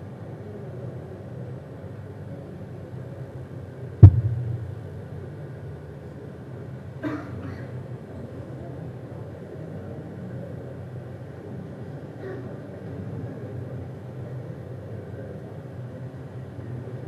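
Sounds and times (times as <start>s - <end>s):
loud sharp thump: 4.0s - 5.1s
steady low hum: 4.0s - 6.2s.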